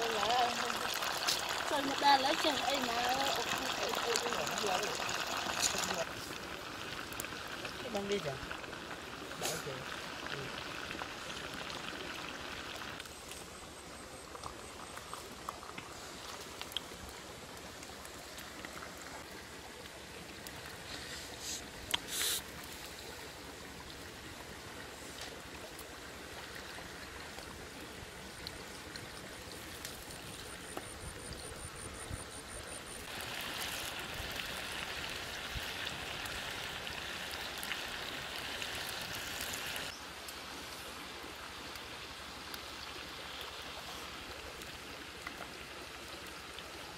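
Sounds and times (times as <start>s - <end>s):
rocky stream running: 0.0s - 46.9s
small clicks and crackles: 14.2s - 23.1s, 28.4s - 30.9s
loud high hiss: 21.4s - 22.5s.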